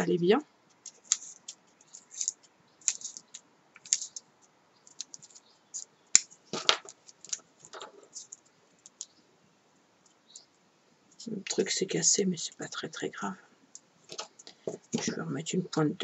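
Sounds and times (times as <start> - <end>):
masking tape crackling off roll: 0.7 - 9.1.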